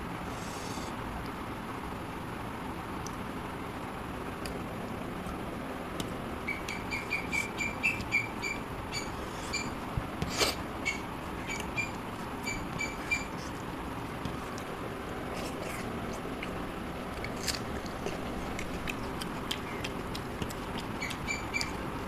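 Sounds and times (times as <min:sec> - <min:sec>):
short high squeaks: 0:06.5 - 0:13.4.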